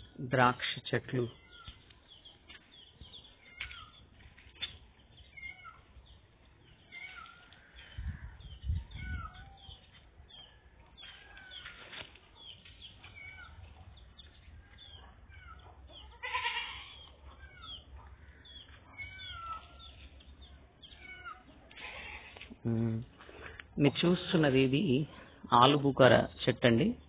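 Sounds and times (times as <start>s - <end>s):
high gliding animal cries: 15.3s - 17.8s, 18.9s - 19.9s.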